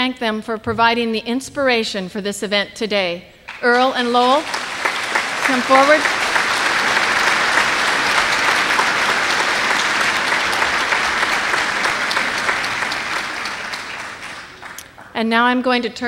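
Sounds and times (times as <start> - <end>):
audience applauding: 3.5 - 15.2.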